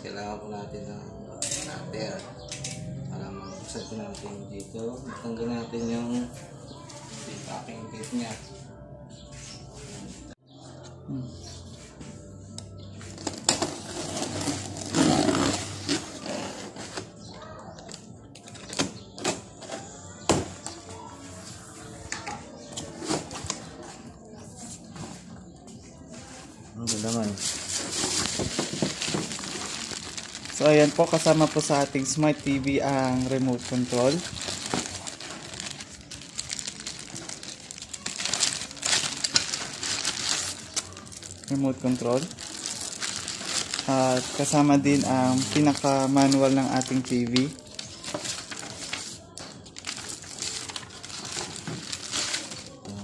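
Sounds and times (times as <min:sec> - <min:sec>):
plastic bag crinkling: 0:26.9 - 0:52.9.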